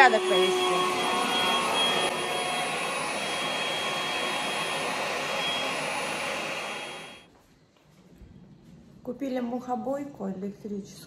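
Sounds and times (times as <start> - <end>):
vacuum cleaner running: 0.0 - 7.3
vacuum motor winding down: 0.0 - 7.3.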